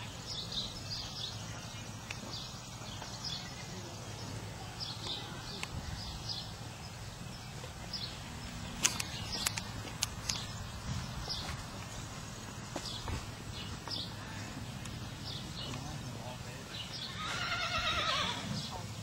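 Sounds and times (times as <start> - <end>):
small birds chirping: 0.0 - 19.0
sharp clicks: 8.7 - 10.6.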